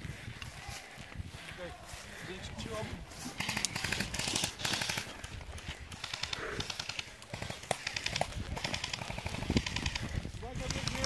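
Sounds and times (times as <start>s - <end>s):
footsteps in dry grass: 0.0s - 11.0s
airsoft guns firing bursts: 3.4s - 11.0s.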